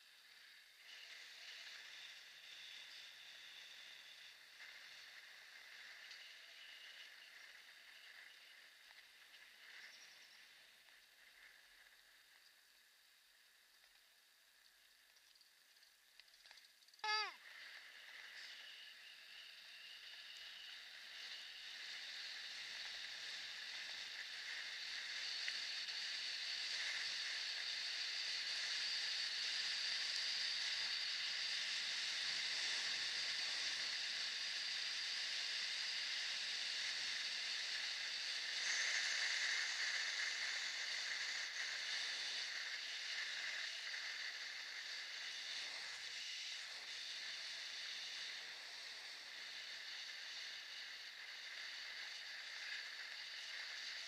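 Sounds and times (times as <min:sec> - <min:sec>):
scooter wheels rolling on asphalt: 0:14.6 - 0:54.0.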